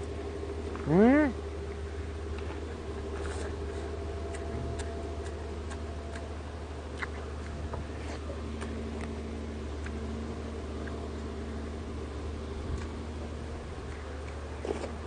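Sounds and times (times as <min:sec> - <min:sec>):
steady low hum: 0:00.0 - 0:15.0
chewing clicks: 0:03.2 - 0:11.0, 0:12.7 - 0:13.0, 0:13.8 - 0:15.0.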